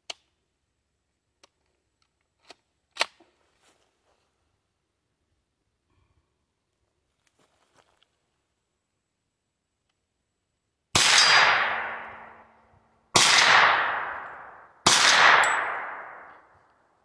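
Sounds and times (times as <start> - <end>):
gunshots with echo: 11.0 - 12.6, 13.2 - 16.5.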